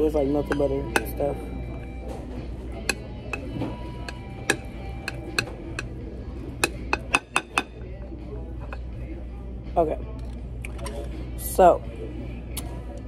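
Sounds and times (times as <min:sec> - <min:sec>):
utensil clicking against dish: 0:02.8 - 0:06.0, 0:06.6 - 0:08.9.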